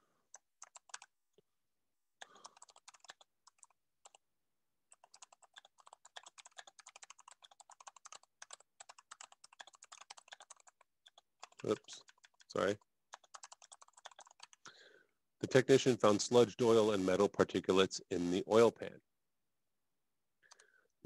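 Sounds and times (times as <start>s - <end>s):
computer keyboard typing: 0.3s - 1.1s, 2.2s - 4.2s, 4.9s - 14.7s, 20.5s - 20.7s.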